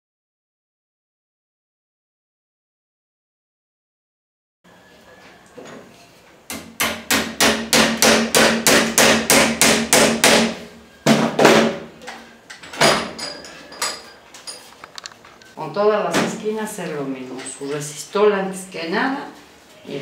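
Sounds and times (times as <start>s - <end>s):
hammer striking nail: 6.5s - 11.8s.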